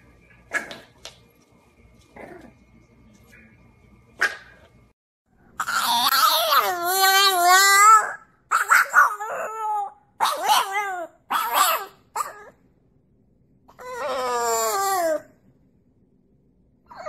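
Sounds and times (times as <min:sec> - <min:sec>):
dog howling: 0:05.6 - 0:12.5, 0:13.7 - 0:15.3.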